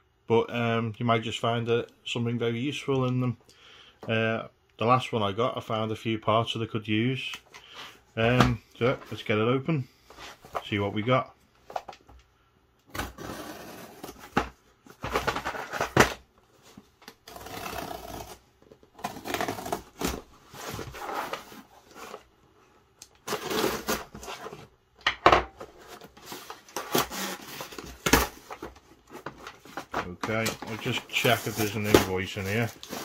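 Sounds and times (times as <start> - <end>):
cardboard scraping and rustling: 12.9 - 18.4, 19.0 - 22.3, 23.2 - 24.7, 25.6 - 33.0.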